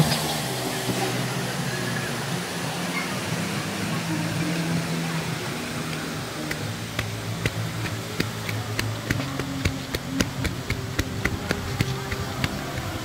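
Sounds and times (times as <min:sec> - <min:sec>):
rapid ticking clicks: 0:06.4 - 0:13.0.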